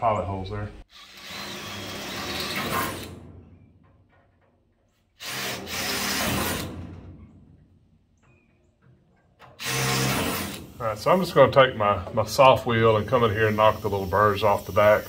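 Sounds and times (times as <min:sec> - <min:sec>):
drill boring through sheet metal: 0:00.9 - 0:03.2, 0:05.2 - 0:06.8, 0:09.5 - 0:11.2.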